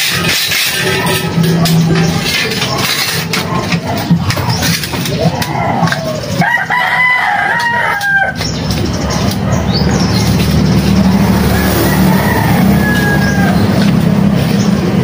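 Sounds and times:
low motor drone: 0.0s - 6.4s, 8.4s - 15.0s
rooster crowing: 5.3s - 8.4s, 11.3s - 14.0s.

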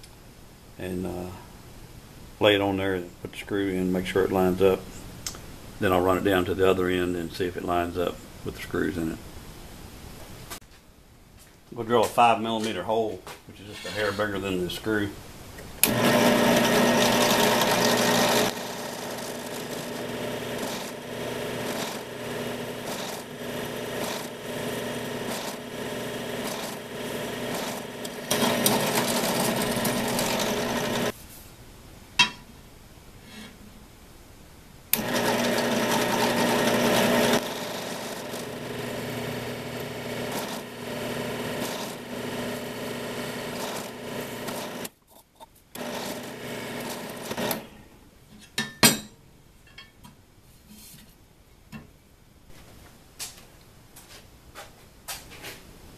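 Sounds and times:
drill press drilling metal: 15.8s - 31.1s, 35.0s - 44.9s, 45.8s - 47.7s.

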